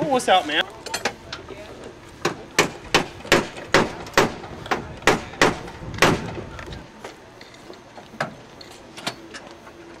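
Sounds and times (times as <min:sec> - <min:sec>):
sharp knocks: 0:02.2 - 0:06.4.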